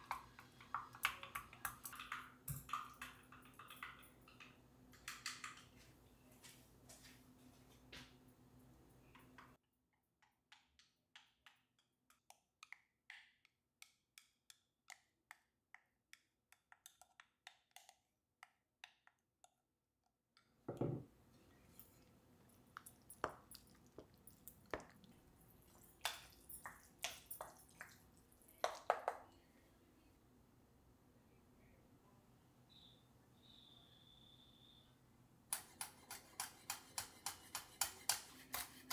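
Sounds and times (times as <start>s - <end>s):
spoon mixing rice in bowl: 21.4s - 29.3s, 35.5s - 38.9s.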